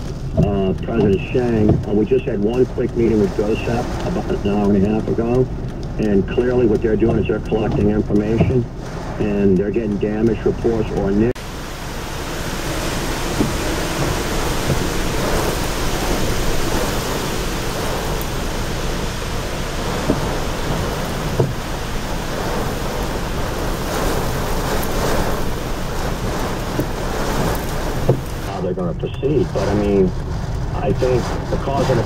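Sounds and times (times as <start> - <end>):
heavy rain: 0.0 - 32.0
strong wind: 0.0 - 32.0
sharp taps: 0.4 - 11.3.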